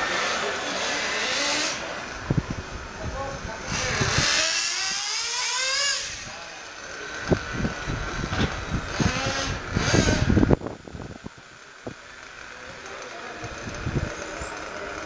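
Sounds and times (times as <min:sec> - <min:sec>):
electric rc car motor whining past: 0:00.0 - 0:02.3, 0:03.6 - 0:10.7.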